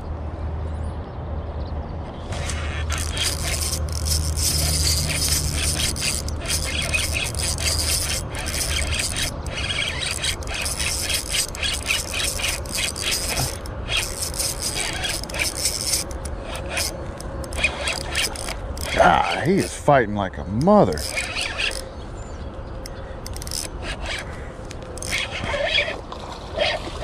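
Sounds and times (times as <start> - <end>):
fishing reel cranking: 2.3 - 19.7, 20.9 - 21.9, 23.2 - 26.0.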